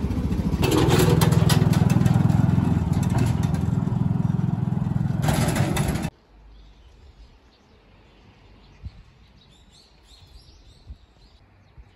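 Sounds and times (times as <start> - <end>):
engine throbbing: 0.0 - 6.1
clattering knocks: 0.6 - 6.1.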